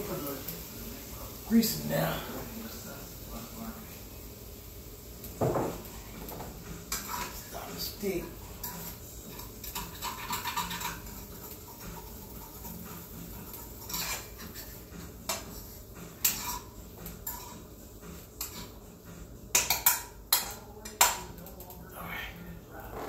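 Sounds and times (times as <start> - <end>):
metal fork clinking on frying pan: 8.6 - 12.6, 19.5 - 21.2.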